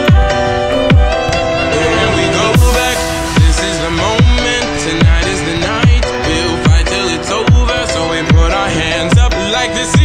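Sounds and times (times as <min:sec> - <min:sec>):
electronic music: 0:00.1 - 0:07.1
deep bass hits falling in pitch: 0:00.8 - 0:07.6.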